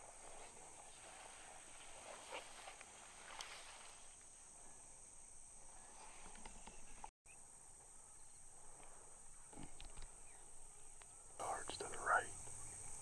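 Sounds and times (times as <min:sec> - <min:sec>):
soft rustles: 0:00.0 - 0:04.3
high insect chorus: 0:00.0 - 0:13.0.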